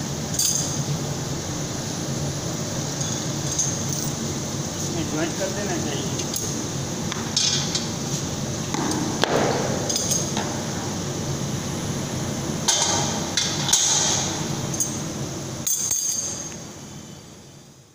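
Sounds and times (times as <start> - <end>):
steady machine hum: 0.0 - 17.9
metal tongs clinking on steel: 9.9 - 10.4, 15.6 - 16.5.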